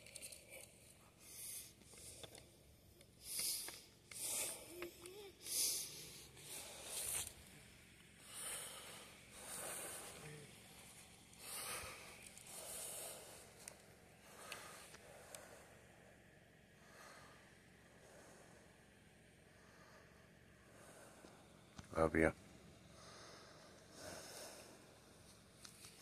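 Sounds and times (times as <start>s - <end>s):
man breathing and sniffling: 0.0s - 16.0s, 22.8s - 26.0s.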